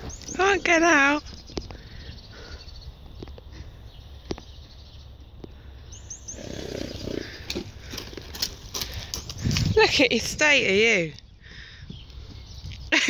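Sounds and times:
horse blowing through nostrils: 6.3s - 8.4s.

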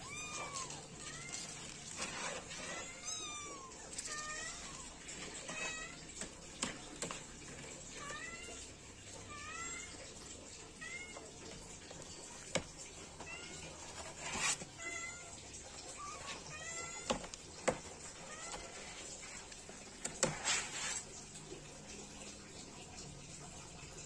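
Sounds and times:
kittens meowing: 0.0s - 1.6s, 2.7s - 6.0s.

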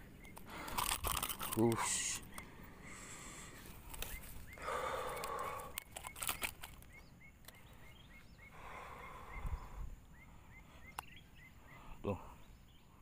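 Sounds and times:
bird chirping: 0.0s - 13.0s
sharp clicks: 0.2s - 2.5s, 5.1s - 7.7s.

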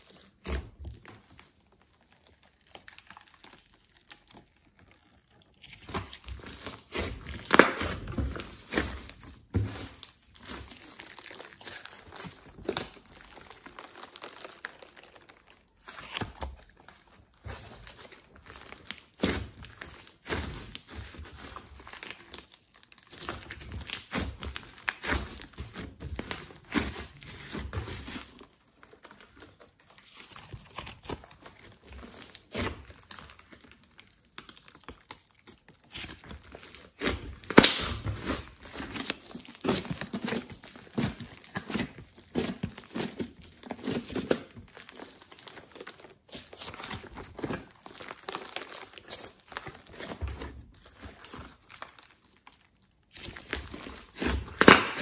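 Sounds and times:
slime squeezed by hand crackling: 36.9s - 39.8s, 54.0s - 55.0s.

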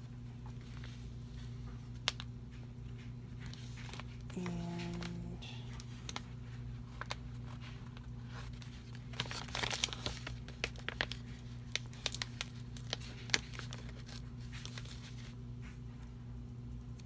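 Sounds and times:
steady low hum: 0.0s - 17.0s
sticker sheet crinkling: 3.4s - 15.4s.

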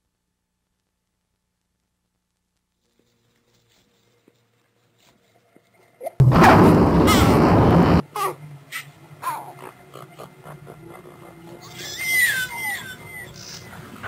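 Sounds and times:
loud harsh noise burst: 6.2s - 8.1s.

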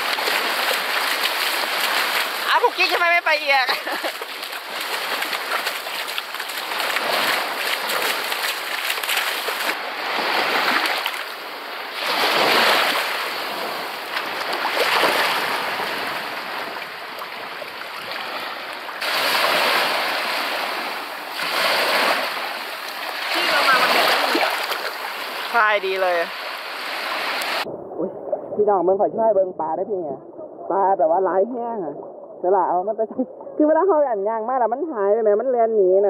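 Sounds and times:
sea waves washing in: 0.0s - 28.6s.

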